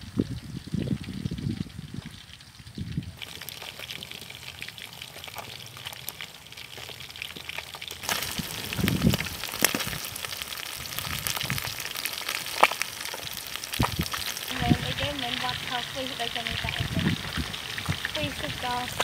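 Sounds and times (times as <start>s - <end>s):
fish sizzling in oil: 0.0s - 19.0s
oil spattering pops: 3.2s - 10.4s.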